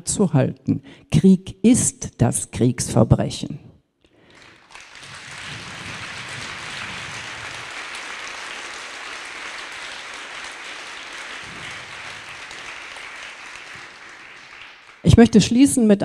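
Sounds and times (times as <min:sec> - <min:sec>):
large audience applauding: 0:04.2 - 0:15.6.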